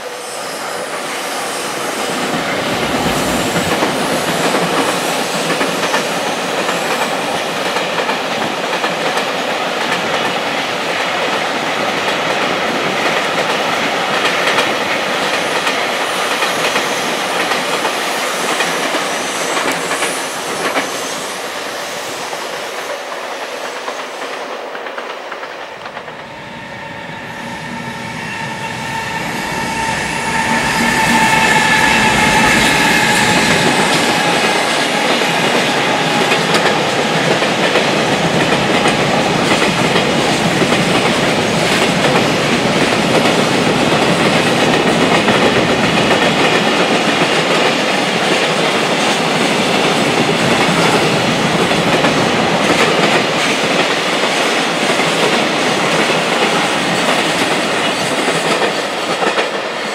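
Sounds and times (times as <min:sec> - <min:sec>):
electric locomotive motor whine: 0:25.8 - 0:40.0
freight train wheels clattering: 0:27.6 - 0:59.8.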